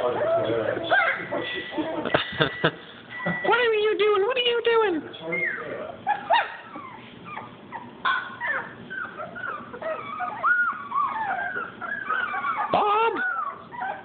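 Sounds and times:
puppy yelp: 0.0 - 1.4, 5.4 - 14.0
puppies whimpering and whining: 0.0 - 2.1, 3.1 - 3.8, 5.2 - 14.0.

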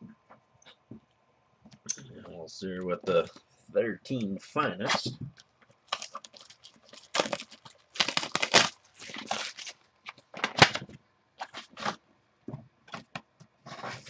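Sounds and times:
foil wrapper tearing and crinkling: 5.8 - 10.8.

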